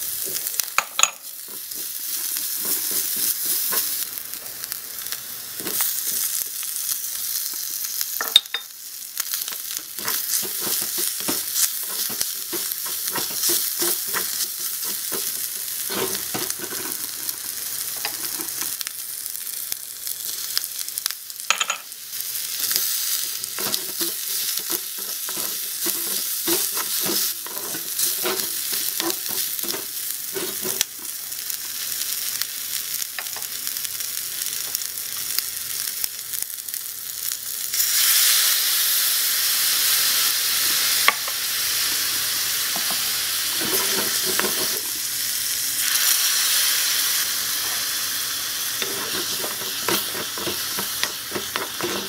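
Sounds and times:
food sizzling in a wok: 0.0 - 52.0
stirring clicks and scrapes: 1.4 - 4.0, 10.0 - 17.4, 23.6 - 31.1, 43.6 - 44.9, 48.8 - 52.0.

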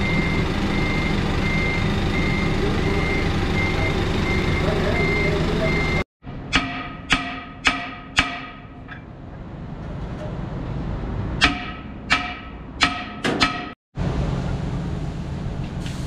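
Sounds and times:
workshop machinery hum: 0.0 - 7.7, 8.7 - 16.0
metal-on-metal strikes: 6.3 - 9.1, 11.4 - 13.8.

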